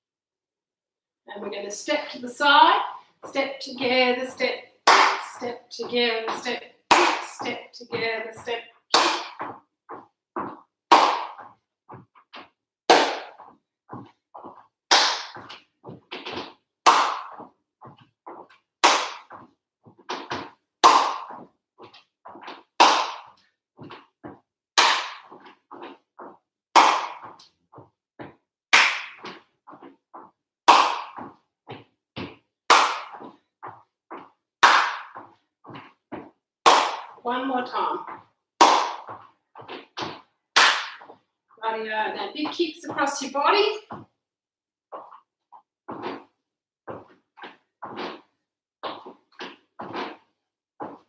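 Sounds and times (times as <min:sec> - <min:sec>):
footsteps on wooden floorboards: 0:02.4 - 0:04.6, 0:05.2 - 0:28.4, 0:29.0 - 0:44.2, 0:44.9 - 0:51.0
sharp hand claps: 0:10.9 - 0:11.4, 0:12.9 - 0:13.3, 0:14.9 - 0:15.6, 0:16.8 - 0:17.4, 0:18.8 - 0:19.3, 0:22.8 - 0:23.3, 0:24.8 - 0:25.4, 0:26.8 - 0:27.5, 0:28.7 - 0:29.4, 0:30.7 - 0:31.3, 0:32.7 - 0:33.3, 0:40.0 - 0:41.2.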